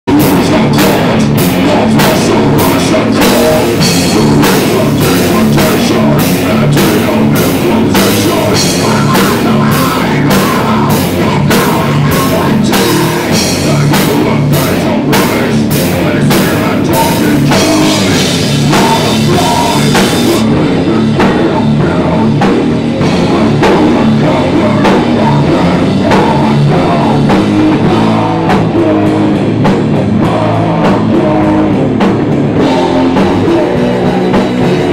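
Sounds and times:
drum kit: 0.0s - 34.9s
electric guitar and bass: 0.0s - 34.9s.

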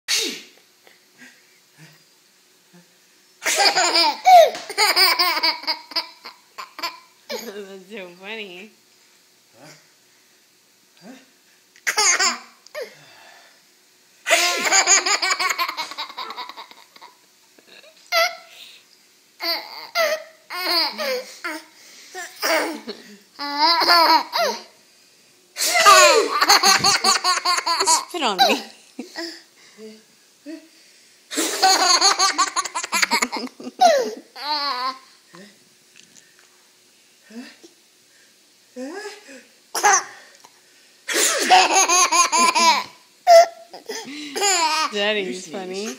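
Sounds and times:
person sneezing: 0.1s - 0.6s, 25.6s - 26.4s, 41.1s - 41.6s
toddler laughing: 3.5s - 7.5s, 14.3s - 17.2s, 22.4s - 24.7s, 31.4s - 35.0s, 41.4s - 45.0s
toddler giggling and squealing: 25.6s - 28.6s.

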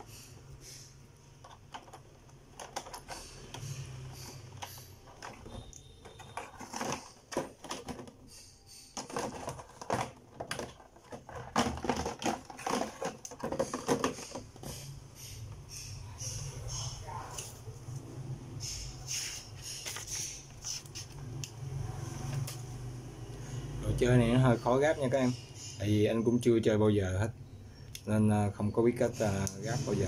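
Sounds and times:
hard plastic clicking and knocking: 9.0s - 14.9s.

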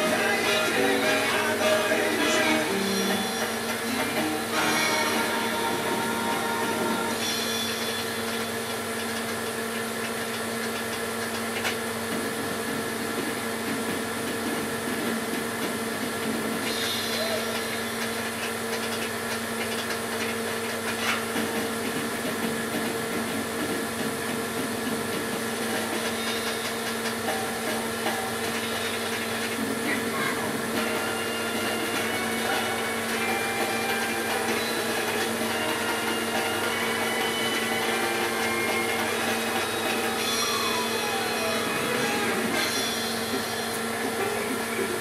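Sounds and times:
tape mechanism whines: 0.0s - 11.8s, 25.5s - 44.5s
whine falling in pitch: 30.8s - 44.2s.

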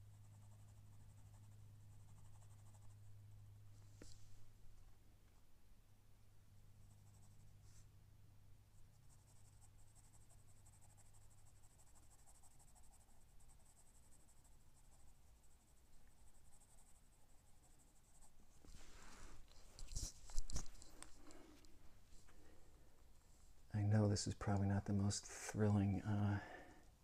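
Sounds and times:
pencil scratching on paper: 0.0s - 3.1s, 6.8s - 7.9s, 8.8s - 21.4s
hand rustling on paper: 18.2s - 22.6s.

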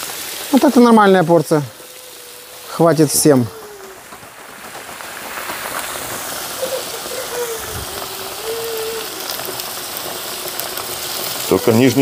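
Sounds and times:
potatoes sizzling in a pan: 0.0s - 12.0s.

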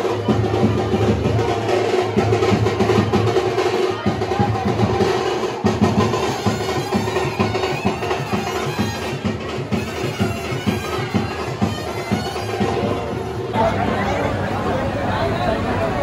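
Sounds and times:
quick even drumming: 0.0s - 13.6s
reedy wind instrument: 4.4s - 15.7s.

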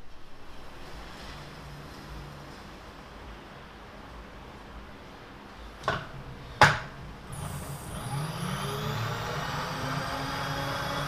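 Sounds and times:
power feed motor winding up: 7.3s - 11.0s.

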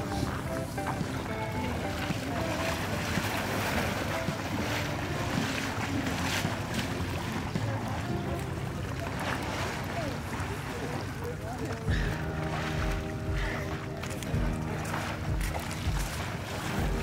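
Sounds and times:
crowd voices: 0.0s - 17.0s
water splashing: 0.0s - 17.0s
wind noise on microphone: 11.9s - 17.0s.

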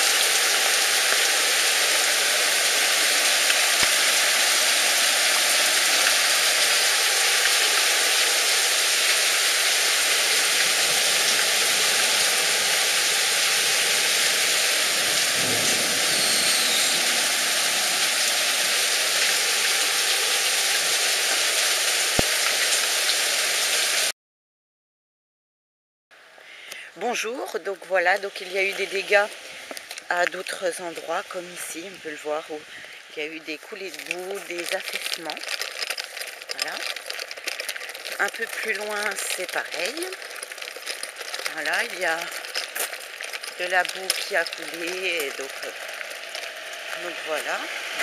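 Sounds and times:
heavy rain pouring: 0.0s - 24.1s, 27.5s - 48.0s
low thunder rumble: 14.9s - 18.1s.

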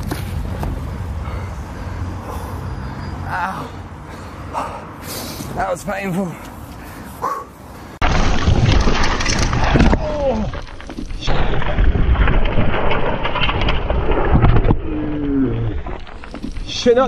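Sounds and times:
bike rattling over rocks: 8.0s - 17.0s
knocks of bike crash: 8.0s - 17.0s
tyres skidding on gravel: 8.0s - 17.0s.

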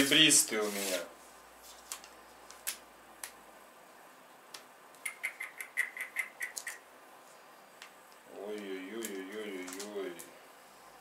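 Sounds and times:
sharp ticks: 5.0s - 6.8s.

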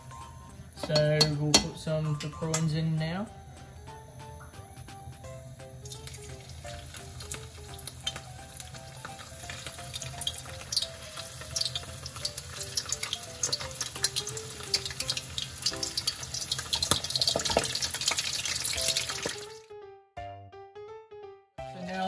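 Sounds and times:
simple background melody: 0.0s - 22.0s
spring rolls deep-frying in oil: 5.8s - 19.6s.

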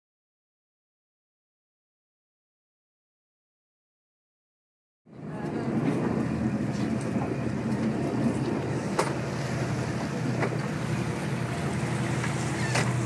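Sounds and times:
boat engine running: 5.1s - 13.0s.

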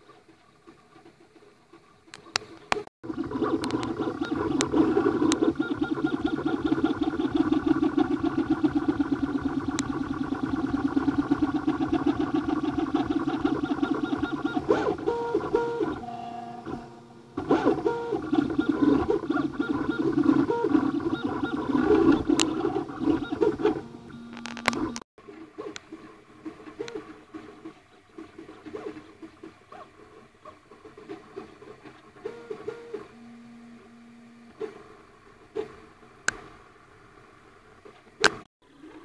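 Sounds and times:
stepper motors buzzing and whining: 3.1s - 25.0s
printer motor tones changing pitch: 3.5s - 25.0s, 32.2s - 34.6s.

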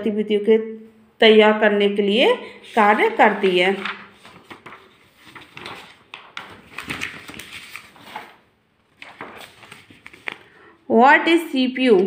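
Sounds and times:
paper rustling: 2.5s - 10.6s.

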